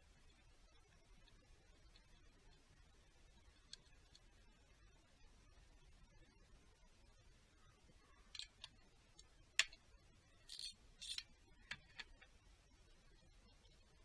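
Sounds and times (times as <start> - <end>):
metal parts clicking: 8.3 - 8.8, 10.4 - 12.2
metal parts scraping: 10.4 - 11.3.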